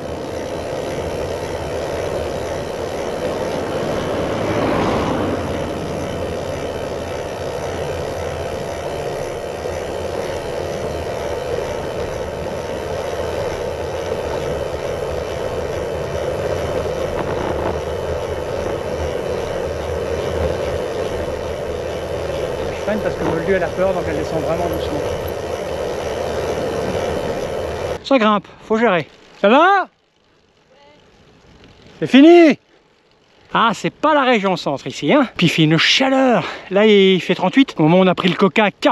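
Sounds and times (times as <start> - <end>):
bicycle tyre noise: 0.0 - 38.9
wind rushing over microphone: 2.8 - 7.2, 16.0 - 28.0.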